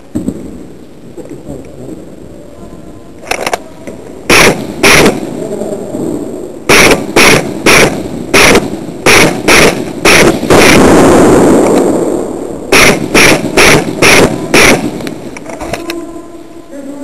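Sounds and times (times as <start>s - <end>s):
noisy rush: 0.0s - 17.0s
airsoft gun shots: 4.3s - 5.3s, 6.7s - 11.9s, 12.7s - 15.8s.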